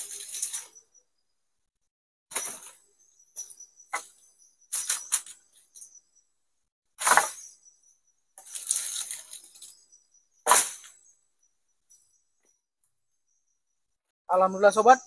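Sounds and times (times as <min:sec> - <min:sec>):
insect chirring: 0:00.0 - 0:01.3, 0:02.3 - 0:06.3, 0:07.0 - 0:15.0
plastic tarpaulin rustling: 0:08.4 - 0:09.7.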